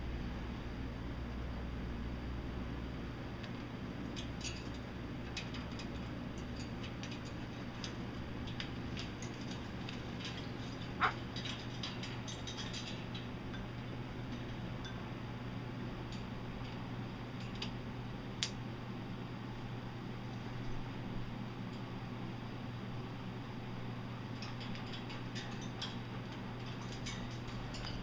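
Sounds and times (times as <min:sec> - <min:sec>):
steady low hum: 0:00.0 - 0:28.0
animals moving on wire cage: 0:03.4 - 0:19.0, 0:23.0 - 0:28.0.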